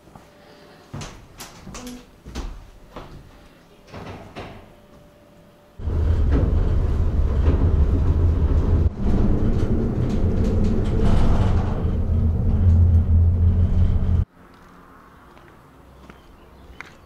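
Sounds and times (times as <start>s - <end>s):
cabin clattering over rollers: 5.8s - 14.2s
cable car cabin rumbling: 5.8s - 14.3s.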